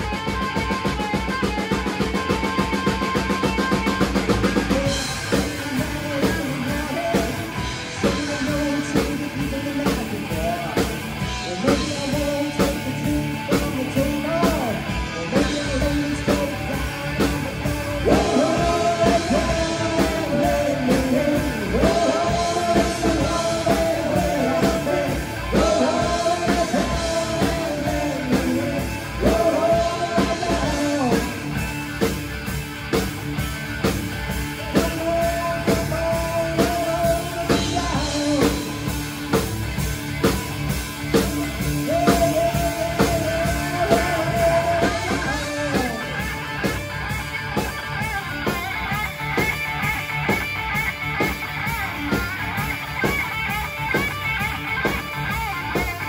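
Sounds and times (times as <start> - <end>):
bass: 0.0 - 56.0
drum kit beat: 0.0 - 56.0
electric guitars: 0.0 - 56.0
person singing: 4.5 - 31.6, 34.5 - 39.0, 41.6 - 46.6.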